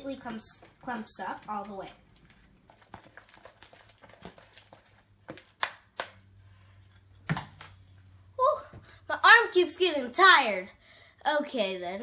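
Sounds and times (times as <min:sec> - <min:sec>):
spatula stirring sticky slime: 0:00.0 - 0:07.9.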